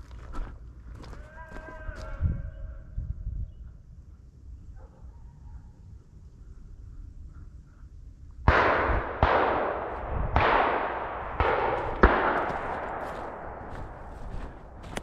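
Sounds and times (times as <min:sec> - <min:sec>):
gunshots with rolling echo: 0:08.4 - 0:15.0.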